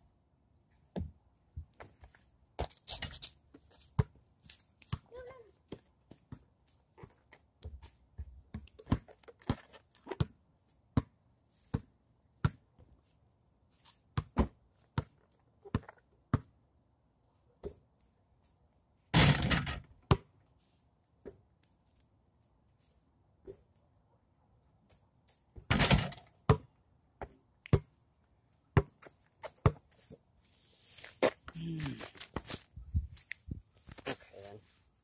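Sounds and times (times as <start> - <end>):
basketball bouncing on pavement: 0.9 - 3.0, 3.7 - 4.2, 4.9 - 12.8, 14.1 - 16.6, 19.2 - 20.4, 25.5 - 28.0, 28.7 - 30.0
ball crashing against hoop: 19.2 - 20.3, 25.6 - 26.7.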